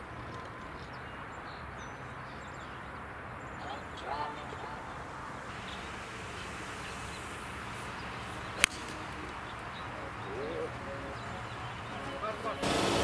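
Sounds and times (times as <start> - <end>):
golf club striking ball: 6.5 - 9.6.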